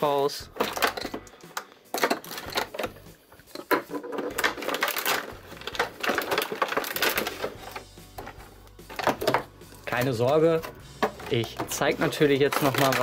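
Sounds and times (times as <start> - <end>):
plastic pieces clicking: 0.5 - 13.0
plastic packaging crackling: 3.6 - 13.0.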